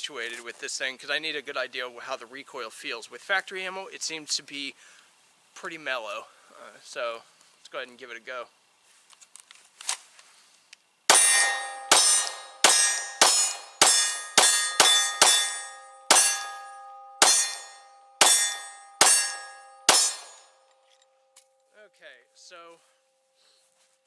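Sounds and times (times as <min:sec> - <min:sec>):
steady ringing tone: 0:11.1 - 0:23.9.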